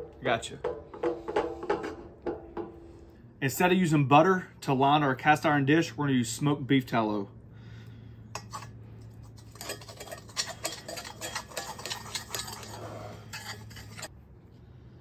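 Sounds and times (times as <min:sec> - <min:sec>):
metal spoon scraping skillet: 0:08.4 - 0:14.1.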